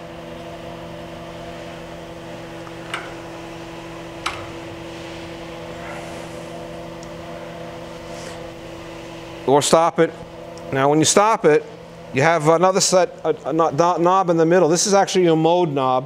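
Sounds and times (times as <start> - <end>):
grinder machine humming: 0.0 - 12.2.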